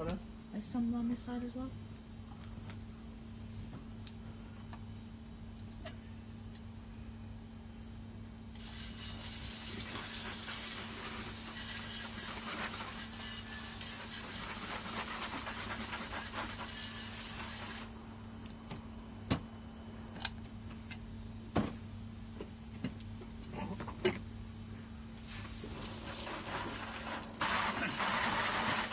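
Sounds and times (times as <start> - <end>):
hose spray hissing on metal: 8.6 - 17.9, 25.2 - 28.9.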